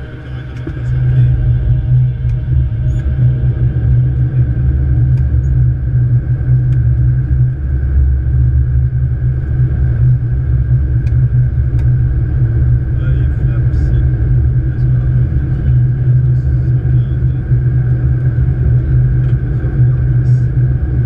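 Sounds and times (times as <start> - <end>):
airflow and engine noise in cockpit: 0.0 - 21.0.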